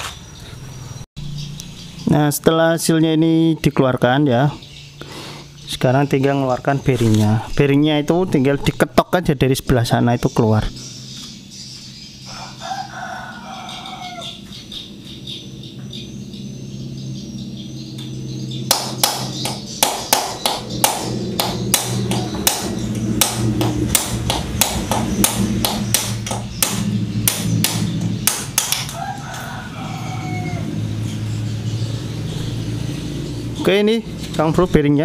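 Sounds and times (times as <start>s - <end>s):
rooster crowing: 12.2s - 14.6s, 21.6s - 23.8s, 28.7s - 31.3s.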